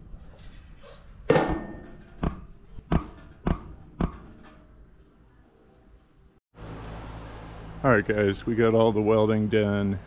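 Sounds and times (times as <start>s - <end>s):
metal knocks on tube frame: 1.3s - 4.6s.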